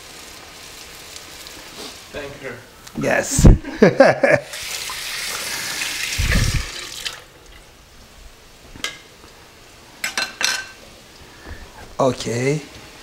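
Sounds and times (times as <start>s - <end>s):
water running from tap: 4.4s - 7.6s.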